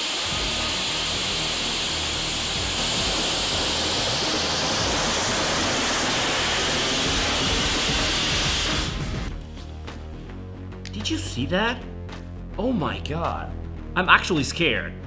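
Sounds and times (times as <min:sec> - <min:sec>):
rocket engine roaring hiss: 0:00.0 - 0:09.4.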